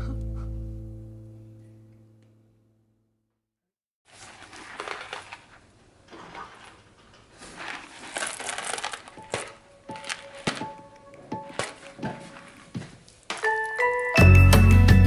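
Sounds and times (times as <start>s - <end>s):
cardboard crackling and tearing: 4.1s - 13.5s.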